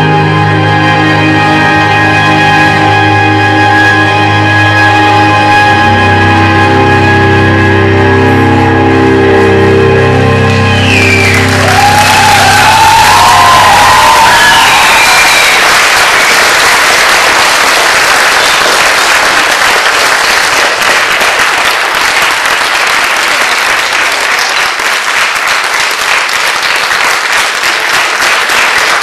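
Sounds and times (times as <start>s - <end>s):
audience applauding: 10.6s - 29.0s.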